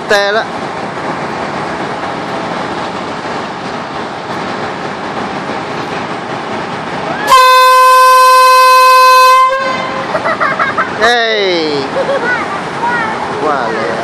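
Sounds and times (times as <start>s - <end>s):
diesel railcar engine rumble: 0.0s - 14.0s
train horn blast: 7.2s - 10.1s.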